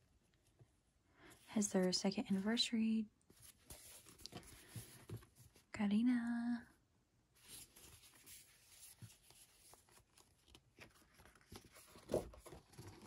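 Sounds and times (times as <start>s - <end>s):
paper rustling: 3.3s - 5.6s, 7.4s - 13.0s.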